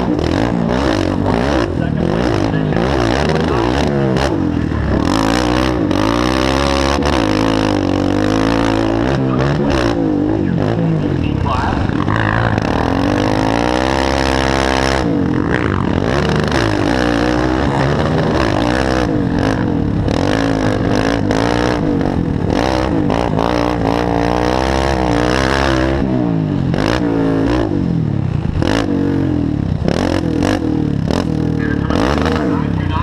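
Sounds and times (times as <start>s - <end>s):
quad engine revving: 0.0s - 33.0s.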